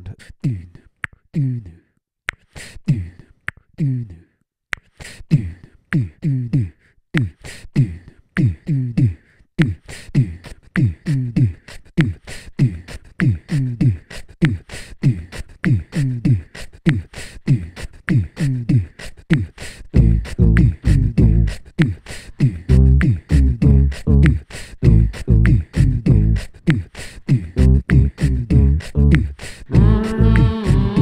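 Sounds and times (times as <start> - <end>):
beatboxing into a microphone: 0.0 - 31.0
heavy low bass layer: 20.0 - 21.5, 22.7 - 26.4, 27.6 - 31.0
deep booms dropping in pitch: 27.6 - 31.0.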